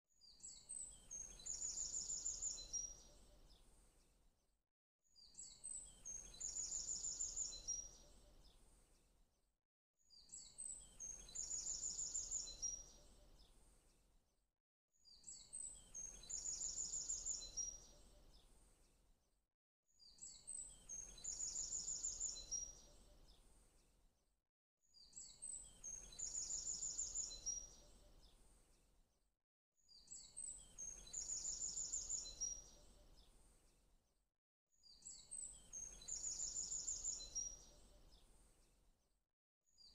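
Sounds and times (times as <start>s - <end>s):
birdsong chirps and trill: 25.0s - 28.4s, 29.9s - 33.4s.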